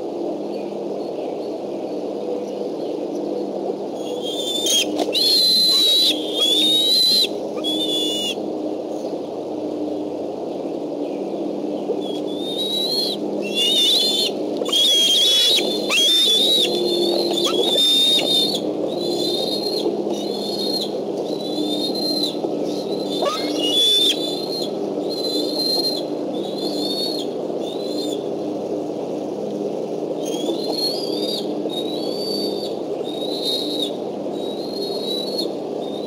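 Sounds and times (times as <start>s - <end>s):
eagle whistled calls: 4.0s - 8.4s, 12.0s - 20.9s, 23.0s - 28.2s.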